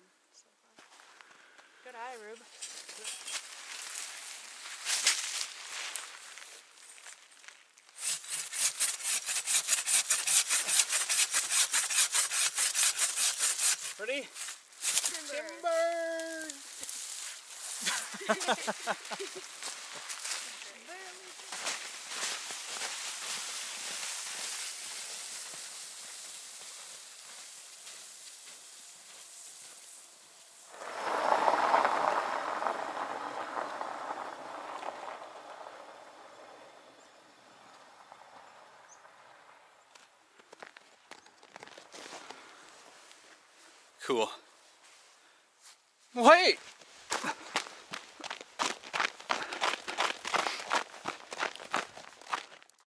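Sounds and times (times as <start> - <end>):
footsteps crunching in snow: 0.8 - 8.4, 13.6 - 34.8, 39.9 - 44.0, 44.6 - 52.8
tree branches dragged over snow: 1.9 - 38.2
hand saw cutting wood: 8.0 - 15.2.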